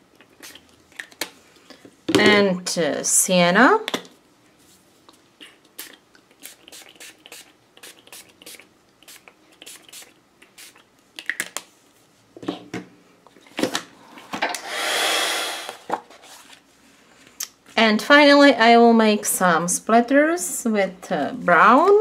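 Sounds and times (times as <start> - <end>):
heat gun blowing: 14.5 - 15.9.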